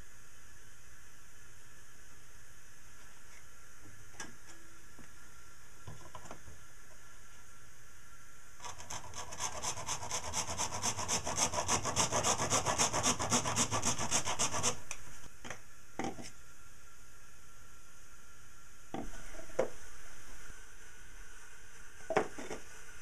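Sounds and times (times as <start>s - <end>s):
hand saw cutting plastic: 8.6s - 14.8s.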